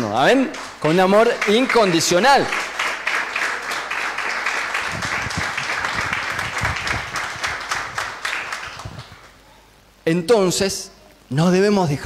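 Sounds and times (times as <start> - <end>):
congregation applauding: 0.0 - 9.4.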